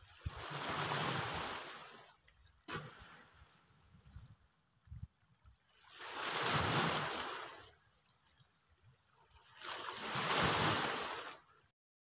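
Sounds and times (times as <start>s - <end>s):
sea waves washing over rocks: 0.0s - 2.1s, 5.8s - 7.7s, 9.4s - 11.5s.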